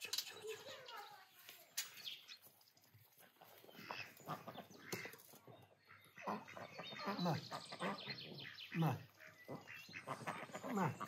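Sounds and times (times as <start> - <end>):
ducks quacking: 3.7 - 11.0.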